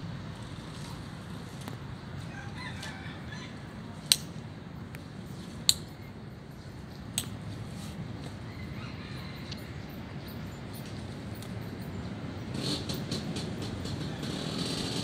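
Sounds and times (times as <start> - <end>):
low steady rumble: 0.0 - 2.6
rooster crowing: 2.2 - 3.7, 8.5 - 10.0.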